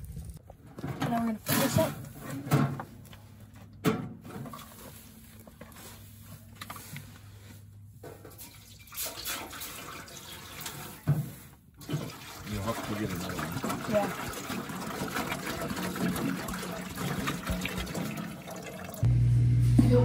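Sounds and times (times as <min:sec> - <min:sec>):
water pouring into metal tank: 0:08.3 - 0:11.1, 0:11.8 - 0:19.1.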